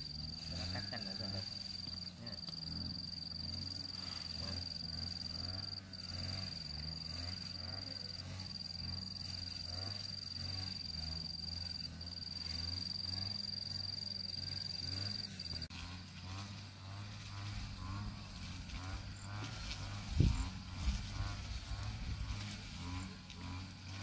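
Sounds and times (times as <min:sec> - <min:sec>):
insect trilling: 0:00.0 - 0:15.7.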